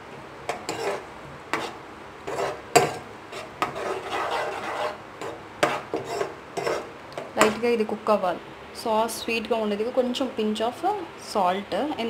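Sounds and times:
spoon scraping pan: 0.5s - 7.6s.

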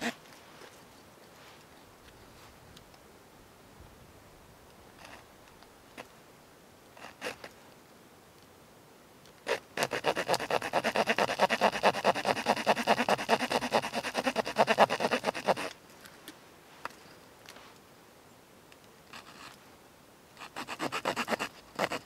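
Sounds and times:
small saw cutting wooden stick: 9.5s - 15.7s, 19.2s - 19.6s, 20.4s - 22.0s.

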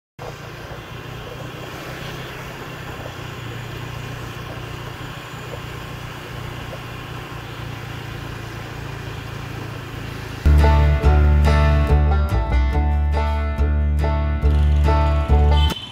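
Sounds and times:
motor traffic hum: 0.2s - 15.9s
loud music: 10.5s - 15.9s.

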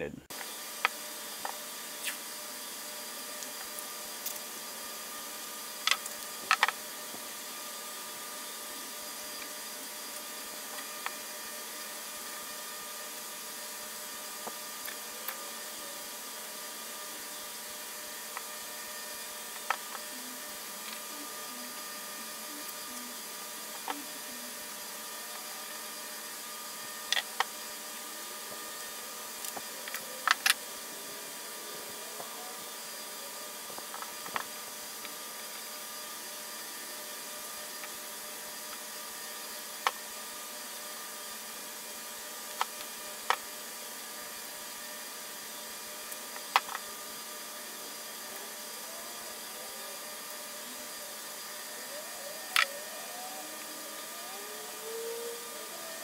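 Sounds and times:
faint hum: 2.0s - 38.8s.

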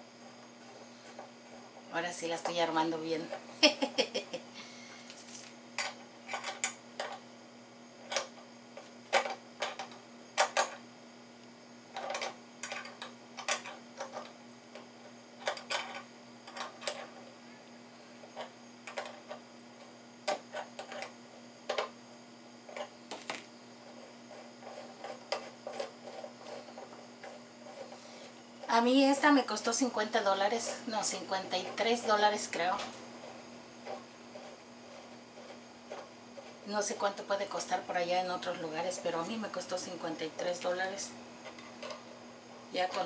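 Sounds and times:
faint steady hum: 0.0s - 43.0s.

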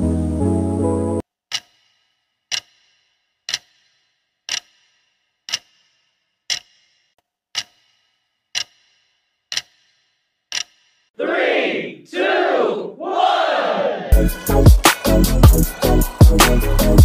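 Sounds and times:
clock-like ticking: 1.5s - 11.1s.

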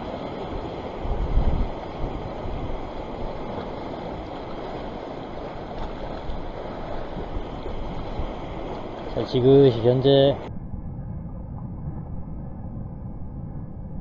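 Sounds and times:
wind noise on microphone: 0.0s - 9.3s
sea washing against rocks: 0.0s - 10.5s.

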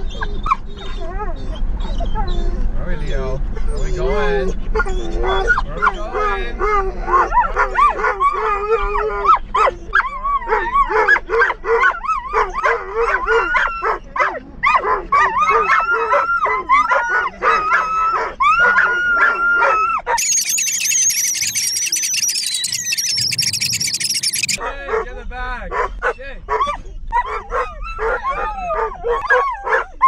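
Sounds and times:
dogs howling and barking: 6.7s - 24.6s, 27.2s - 30.0s.

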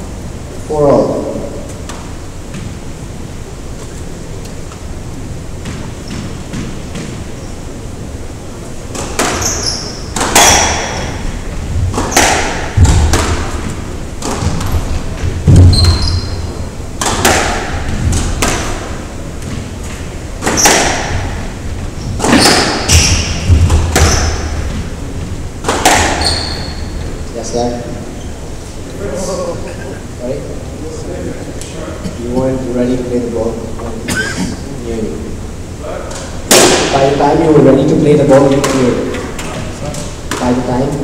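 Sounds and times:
squash ball hitting racquets and walls: 5.5s - 7.5s, 8.8s - 27.2s, 36.2s - 37.2s, 38.3s - 41.0s
shoe squeaks on wooden floor: 9.3s - 10.7s, 15.5s - 16.6s, 22.0s - 24.8s, 26.1s - 27.1s.

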